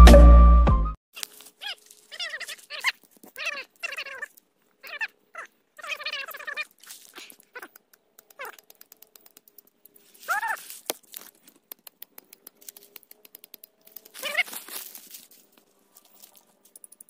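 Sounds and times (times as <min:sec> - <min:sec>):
dry twigs and leaves crackling: 0:01.2 - 0:17.0
wavering cries: 0:01.6 - 0:08.6, 0:10.1 - 0:10.7, 0:14.0 - 0:14.8.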